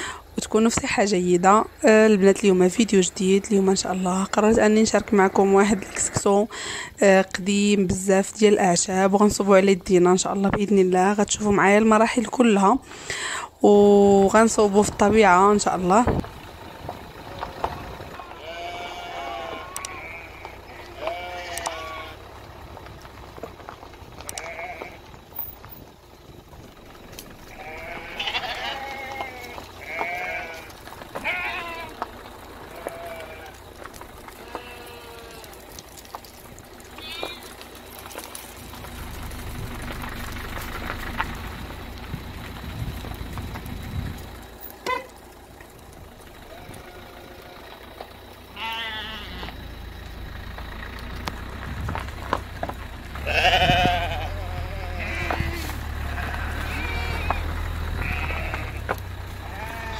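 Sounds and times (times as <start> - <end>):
low rumble: 14.0 - 59.9
sheep bleating: 17.2 - 22.2, 24.2 - 25.1, 27.5 - 32.1, 32.7 - 36.1, 37.0 - 37.6, 46.4 - 47.8, 48.5 - 49.6, 53.2 - 59.9.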